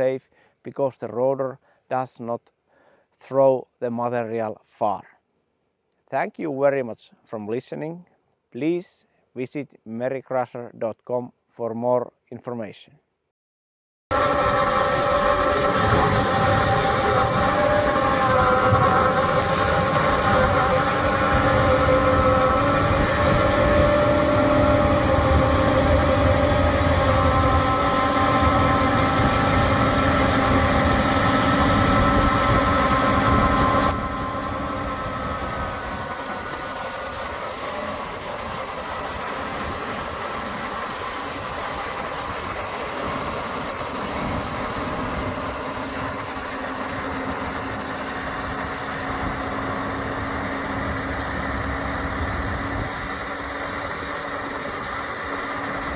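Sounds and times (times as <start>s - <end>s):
tiller rotor grinding soil: 14.1s - 55.9s
tractor diesel engine: 14.1s - 55.9s.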